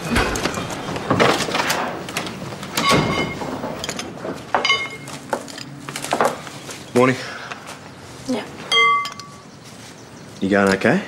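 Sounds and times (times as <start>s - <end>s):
door opening and shutting: 0.0s - 6.5s.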